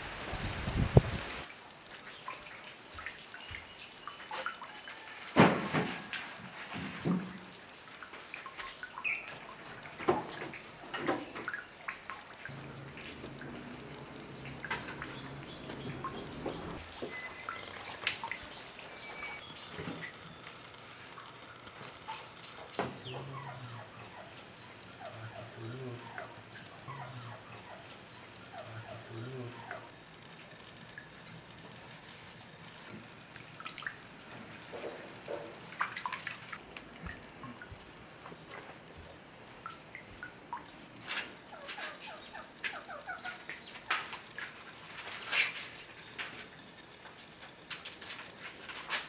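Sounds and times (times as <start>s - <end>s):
insects droning: 8.5s - 49.0s
chickens clucking and chirping: 41.5s - 43.8s.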